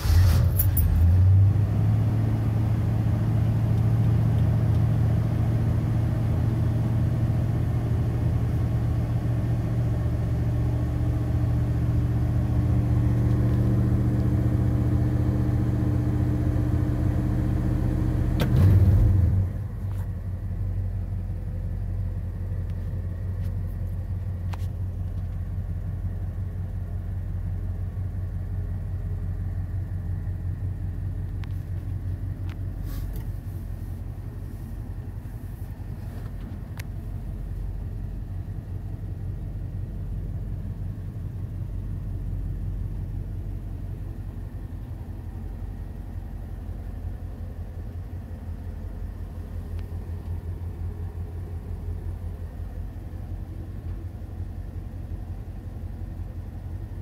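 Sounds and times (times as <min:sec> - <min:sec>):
truck engine idling: 0:19.3 - 0:57.0.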